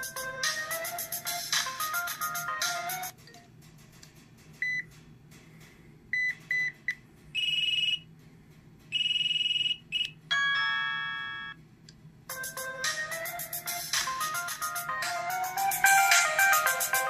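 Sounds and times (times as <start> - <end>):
phone ringtone beeps: 9.0 - 11.6.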